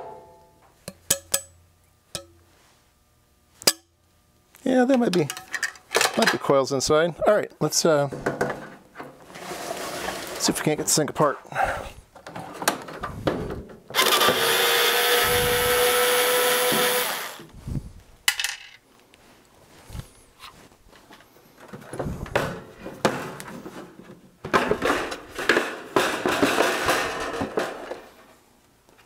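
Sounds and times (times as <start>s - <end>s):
power screwdriver running: 14.0s - 17.4s.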